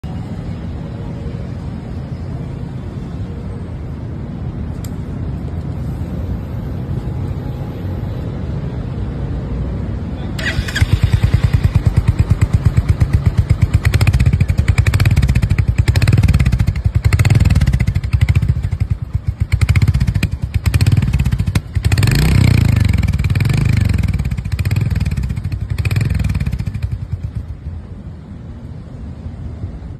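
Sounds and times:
motorcycle engine revving: 0:10.4 - 0:27.6
motorcycle engine idling: 0:10.4 - 0:27.9.

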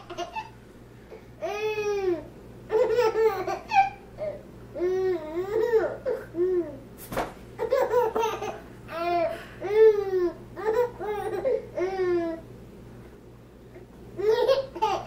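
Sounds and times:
baby laughing: 0:00.0 - 0:00.6, 0:01.4 - 0:06.2, 0:07.6 - 0:12.3, 0:14.2 - 0:15.0.

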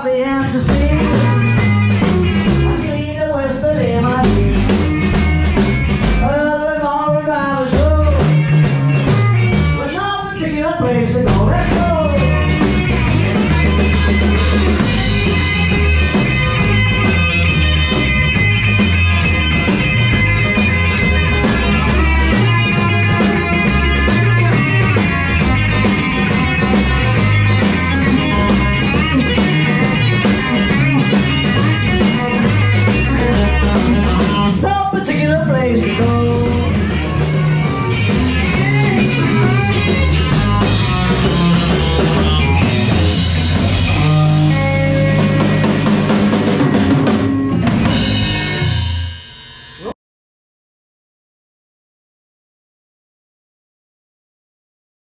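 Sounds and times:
electric guitars: 0:00.0 - 0:49.9
drum kit with cymbal hits: 0:00.2 - 0:03.0, 0:03.6 - 0:49.9.

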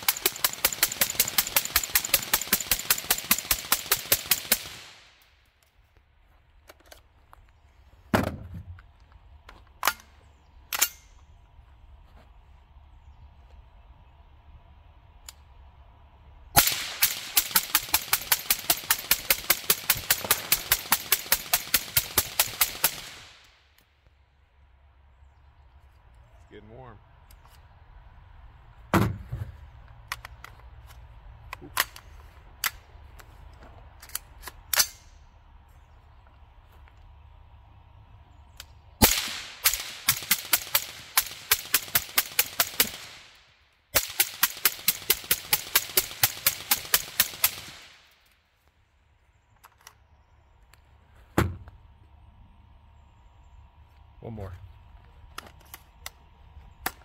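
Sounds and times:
steady low rumble: 0:04.6 - 0:42.2, 0:47.7 - 0:57.0
suppressed rifle shots: 0:16.6 - 0:23.4, 0:39.0 - 0:43.4.

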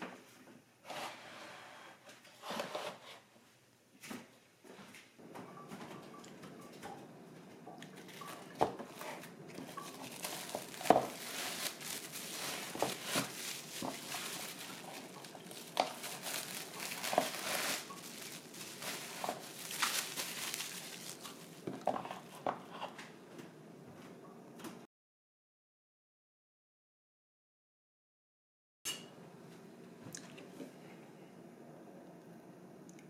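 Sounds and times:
crinkling and rustling handling: 0:04.0 - 0:23.5.

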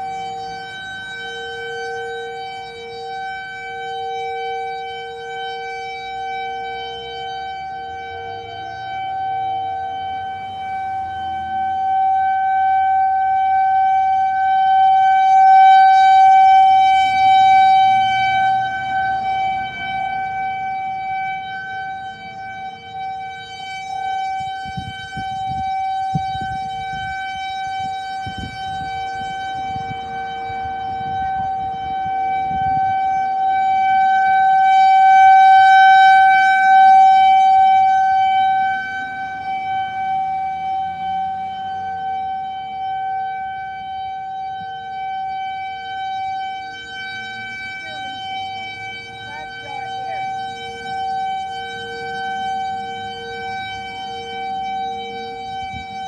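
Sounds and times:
warning siren alert tone: 0:00.0 - 0:56.0.

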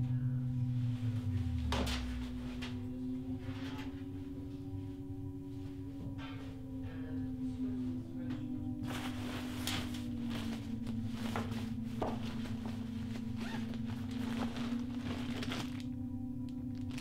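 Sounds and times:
background music drone: 0:00.0 - 0:17.0
nylon jacket rustling: 0:08.8 - 0:15.9.

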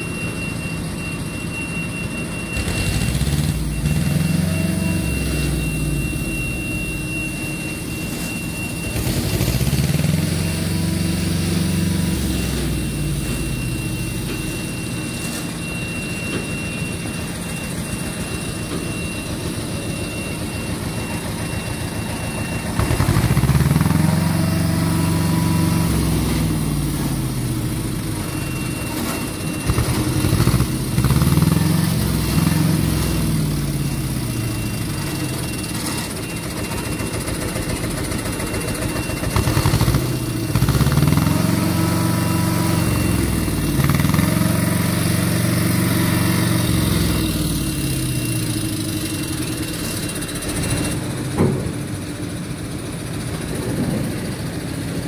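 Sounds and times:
diesel engine revving: 0:02.5 - 0:07.0, 0:08.8 - 0:14.4, 0:22.6 - 0:36.2, 0:39.1 - 0:55.0.

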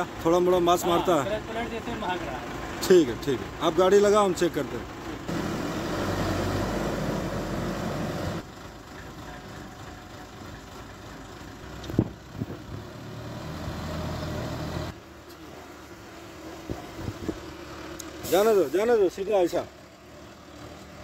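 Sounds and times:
crane diesel engine running: 0:00.0 - 0:13.2.

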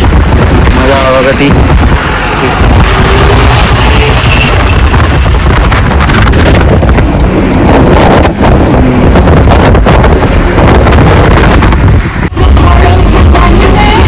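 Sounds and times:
road noise: 0:00.0 - 0:14.0
wind buffeting microphone: 0:00.0 - 0:14.0.

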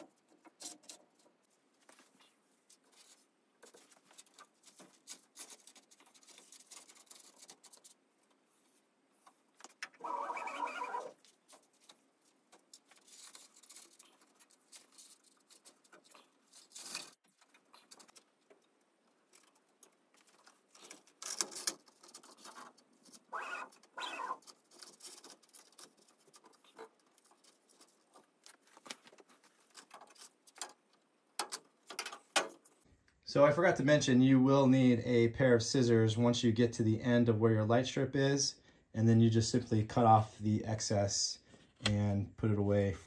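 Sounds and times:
hands rustling light strip: 0:00.0 - 0:32.8.

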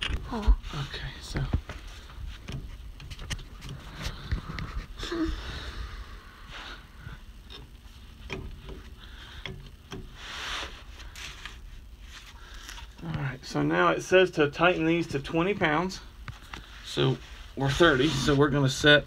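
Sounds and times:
person breathing: 0:03.9 - 0:07.3, 0:08.9 - 0:11.4.

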